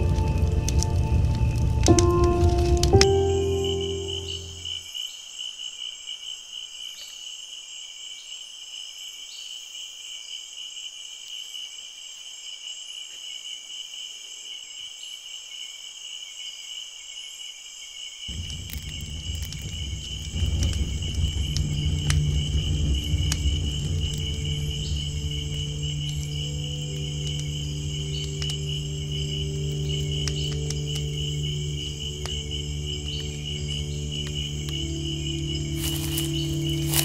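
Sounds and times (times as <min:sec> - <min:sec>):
campfire crackling: 0:00.0 - 0:04.7, 0:18.3 - 0:37.0
low steady drone: 0:00.0 - 0:04.8, 0:18.3 - 0:37.0
crickets chirping: 0:00.0 - 0:37.0.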